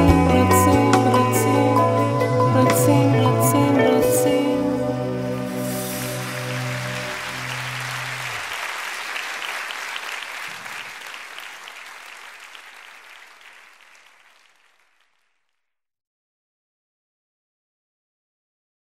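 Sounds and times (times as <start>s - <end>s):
band holding low final note: 0.0s - 8.6s
audience applause: 5.6s - 15.2s.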